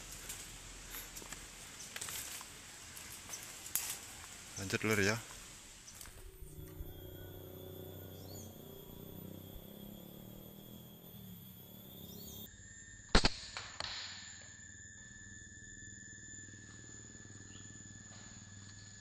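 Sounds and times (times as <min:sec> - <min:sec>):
insects buzzing: 0:00.0 - 0:19.0.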